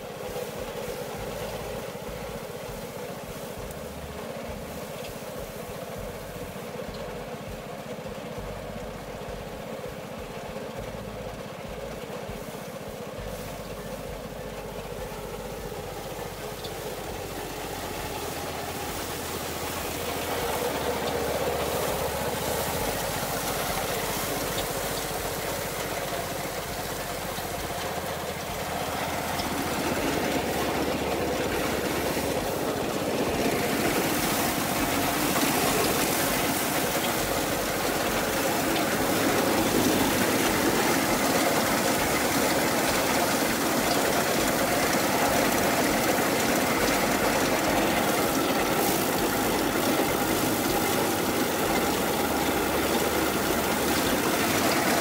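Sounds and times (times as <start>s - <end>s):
threshing machine running: 0.0s - 55.0s.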